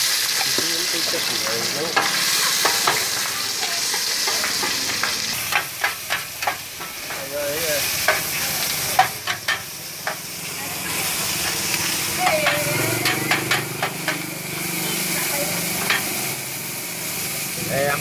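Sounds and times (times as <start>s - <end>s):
food sizzling in a wok: 0.0s - 18.0s
metal spatula scraping a pan: 0.5s - 7.2s.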